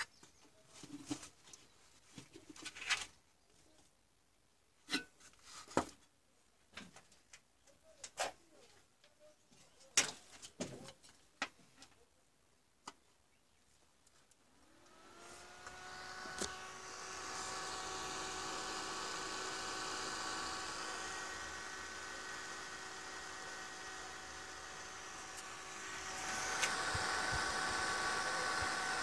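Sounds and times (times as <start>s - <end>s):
power supply cooling fan whirring: 14.6s - 29.0s.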